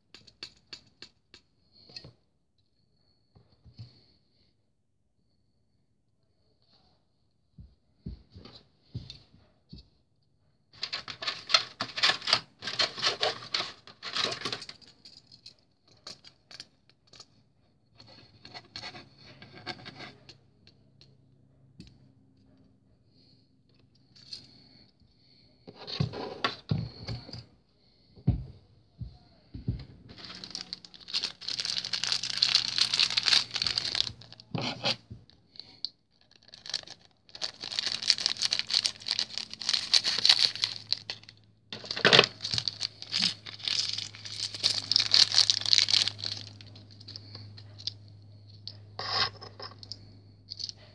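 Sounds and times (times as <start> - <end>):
plastic bags crinkling: 10.8 - 14.8, 30.1 - 34.9, 36.2 - 47.2.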